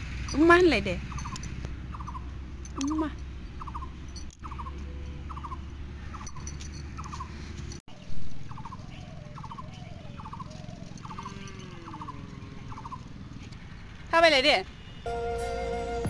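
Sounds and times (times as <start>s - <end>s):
animal trilling call: 1.1s - 2.3s, 3.6s - 7.4s, 8.5s - 13.1s.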